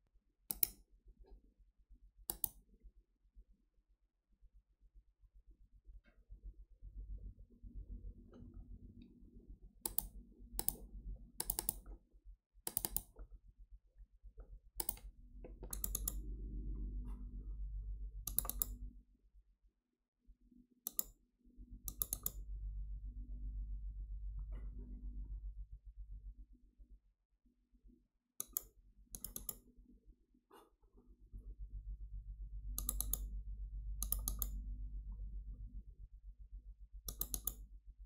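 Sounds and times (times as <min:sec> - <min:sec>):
computer mouse clicking: 0:00.5 - 0:00.8, 0:02.3 - 0:02.6, 0:09.8 - 0:12.0, 0:12.6 - 0:13.3, 0:14.8 - 0:16.3, 0:18.2 - 0:18.8, 0:20.8 - 0:21.2, 0:21.8 - 0:22.4, 0:28.4 - 0:29.7, 0:32.8 - 0:33.3, 0:34.0 - 0:34.6, 0:37.1 - 0:37.7
low hum: 0:05.9 - 0:11.4, 0:15.0 - 0:19.1, 0:21.6 - 0:26.5, 0:31.2 - 0:38.0.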